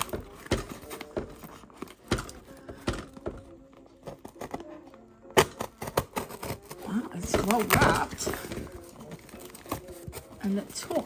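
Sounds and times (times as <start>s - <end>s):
parcel knocks and thunks: 0.0s - 4.7s.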